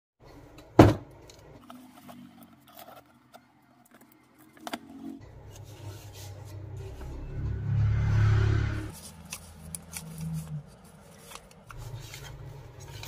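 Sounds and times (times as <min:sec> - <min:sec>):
knock on table: 0:00.8 - 0:01.0
light clicks and paper rustles: 0:09.0 - 0:13.0.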